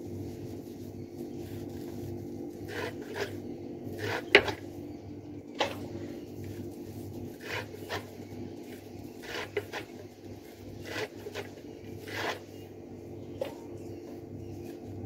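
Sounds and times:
knife cutting stems on wooden board: 2.7s - 4.6s, 7.4s - 8.2s, 9.2s - 10.1s, 10.8s - 12.5s.

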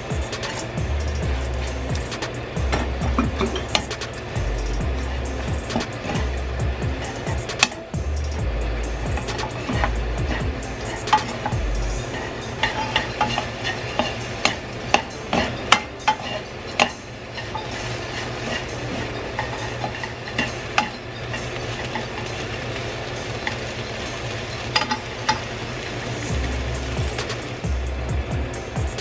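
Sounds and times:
chopsticks tapping a pan: 0.0s - 29.0s
food sizzling in a wok: 0.0s - 29.0s
low steady hum: 0.0s - 29.0s.

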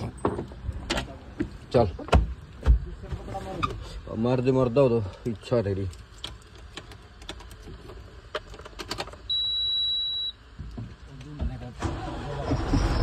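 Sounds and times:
dashboard warning buzzer beep: 9.3s - 10.4s.

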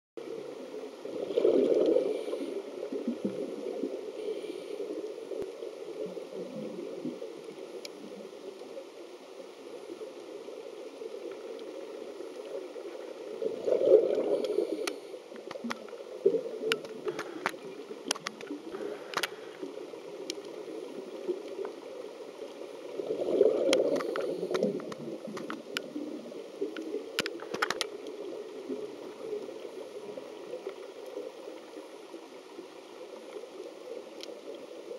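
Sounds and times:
muffled water rumble: 0.2s - 34.9s
diver's bubbles gurgling: 0.4s - 4.0s, 12.4s - 22.1s, 22.8s - 31.4s
sharp underwater clicks: 13.7s - 20.6s, 23.3s - 26.0s, 26.6s - 28.2s.

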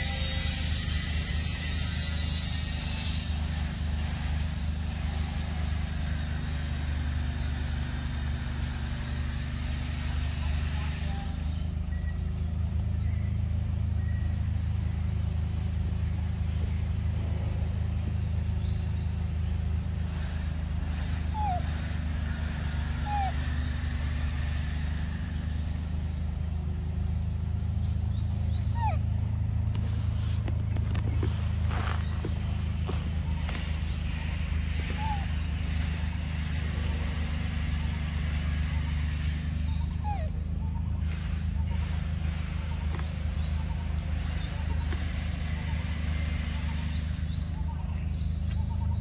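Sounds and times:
short rising squeaks: 0.0s - 4.8s
low mechanical engine hum: 0.0s - 49.0s
bird chirps: 31.1s - 36.8s, 39.6s - 49.0s.

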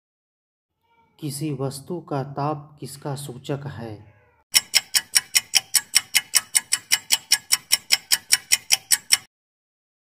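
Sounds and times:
countdown timer ticking: 4.5s - 9.3s.

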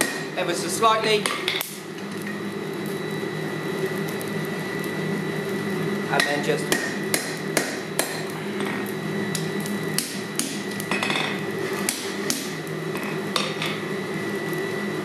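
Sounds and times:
hammer striking metal on anvil: 0.0s - 0.3s, 6.2s - 8.3s
steady hum: 0.0s - 15.0s.

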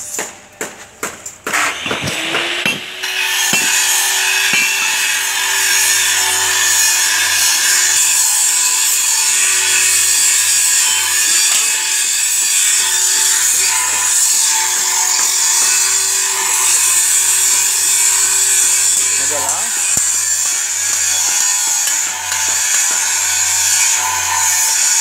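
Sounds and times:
power tool grinding steel: 1.3s - 25.0s.

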